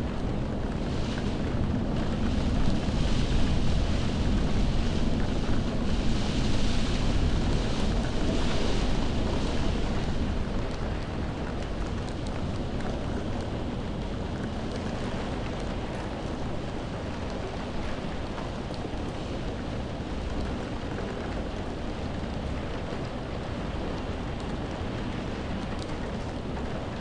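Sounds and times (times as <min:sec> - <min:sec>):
heavy rain on window glass: 0:00.0 - 0:27.0
raindrop ticks: 0:07.0 - 0:27.0.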